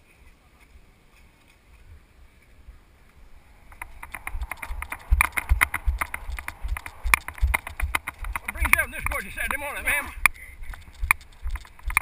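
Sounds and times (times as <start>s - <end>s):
running footsteps on mud: 3.8s - 12.0s.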